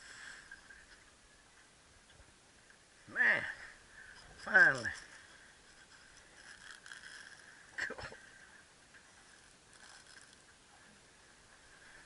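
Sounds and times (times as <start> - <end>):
fishing reel whirring and ticking: 5.8 - 7.5, 9.2 - 10.5.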